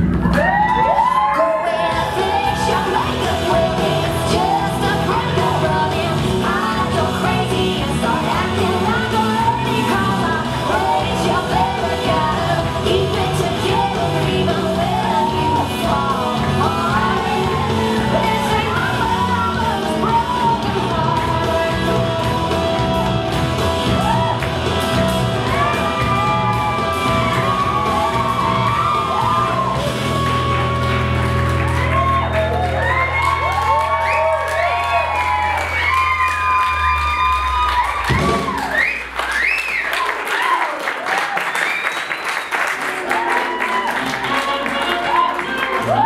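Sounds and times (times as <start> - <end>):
country-rock song with woman singing: 1.3 - 30.1.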